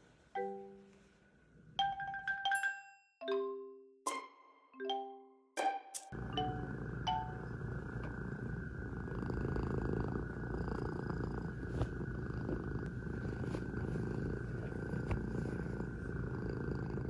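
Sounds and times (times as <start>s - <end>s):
cat purring: 6.2s - 17.0s.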